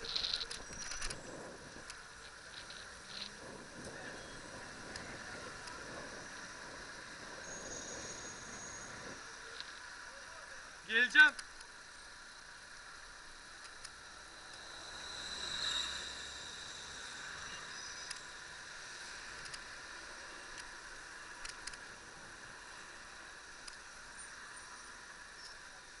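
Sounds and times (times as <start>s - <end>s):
faint clicks: 0.0s - 4.0s, 11.3s - 11.8s, 13.6s - 14.6s, 19.4s - 19.7s, 20.5s - 21.9s, 23.6s - 23.8s
wind on microphone: 0.0s - 9.3s
street traffic rushing: 0.0s - 25.9s.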